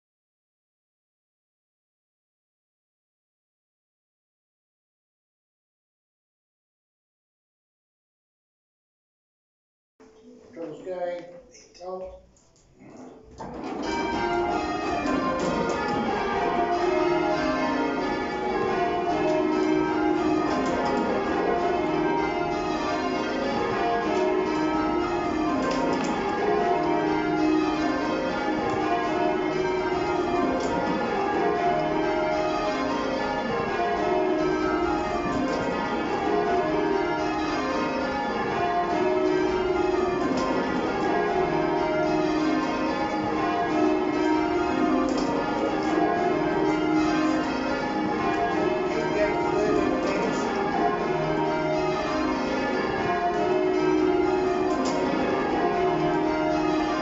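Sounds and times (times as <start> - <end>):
church bells ringing: 13.4 - 57.0.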